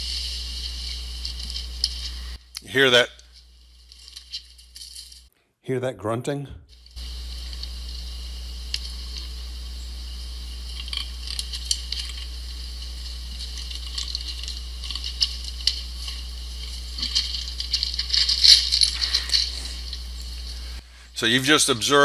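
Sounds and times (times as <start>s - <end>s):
steady low hum: 0.0s - 5.3s, 6.4s - 22.0s
hooves and antlers clicking: 10.6s - 21.5s.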